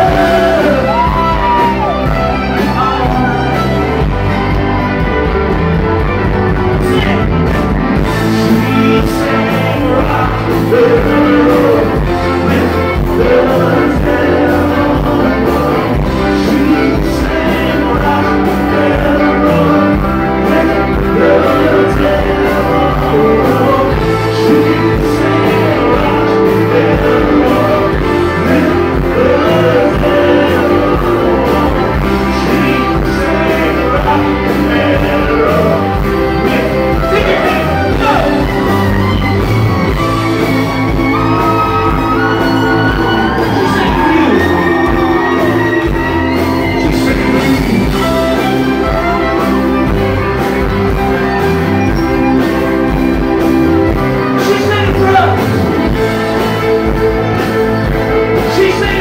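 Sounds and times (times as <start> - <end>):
man singing: 0.0 - 3.7, 6.6 - 38.7, 41.4 - 50.0, 54.2 - 56.1, 58.3 - 59.0
live rock band: 0.0 - 59.0.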